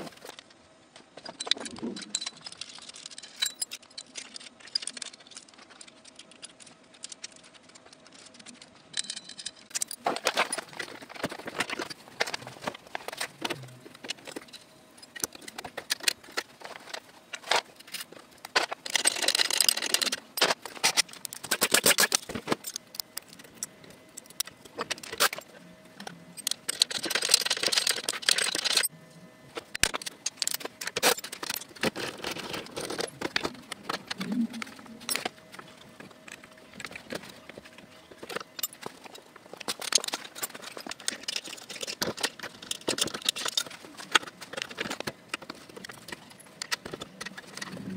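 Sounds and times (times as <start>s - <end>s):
metal tools clinking: 1.2s - 6.4s, 26.4s - 28.9s, 36.3s - 47.8s.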